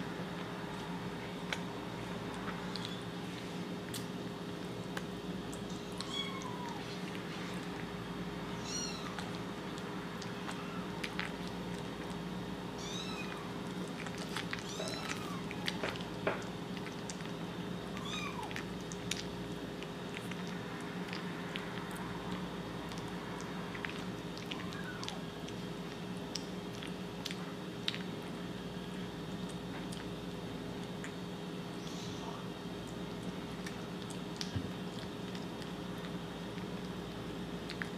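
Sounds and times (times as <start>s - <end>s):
kitten chewing and lapping: 0.1s - 37.9s
kitten mewing: 5.9s - 6.9s, 8.5s - 9.4s.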